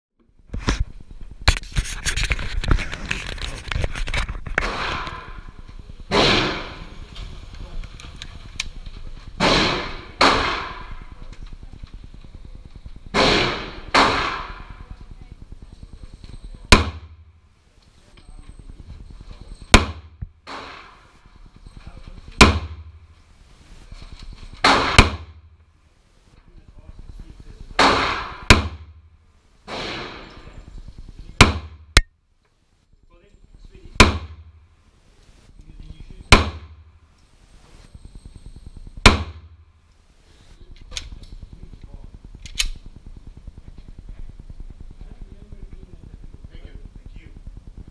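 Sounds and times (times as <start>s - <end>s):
gunshots echoing indoors: 4.7s - 7.0s, 9.4s - 11.2s, 13.1s - 14.9s, 19.8s - 21.2s, 24.6s - 25.4s, 27.8s - 29.0s, 29.7s - 30.4s
pistol shot with echo: 6.1s - 6.9s, 9.4s - 11.0s, 13.1s - 14.8s, 16.7s - 17.1s.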